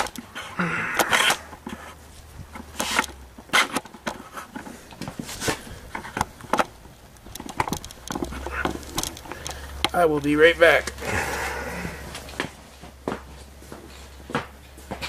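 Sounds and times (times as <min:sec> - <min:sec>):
camera handling rustles and clicks: 0:00.0 - 0:10.0.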